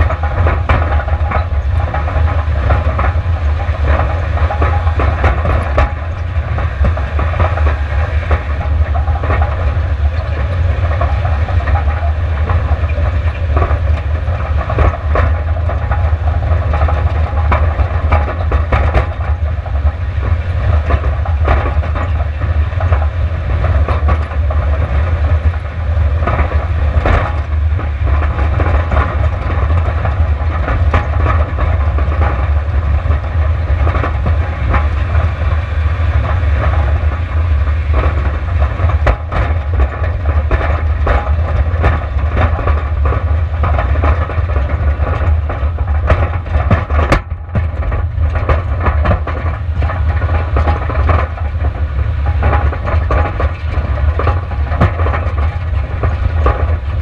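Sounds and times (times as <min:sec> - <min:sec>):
car rumbling on rough track: 0:00.0 - 0:57.0
knocks and rattles: 0:00.0 - 0:57.0.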